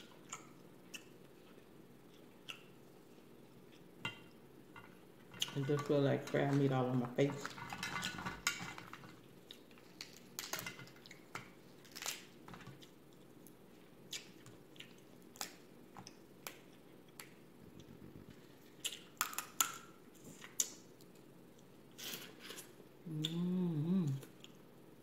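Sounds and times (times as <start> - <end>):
crab shells cracking: 7.4 - 12.9.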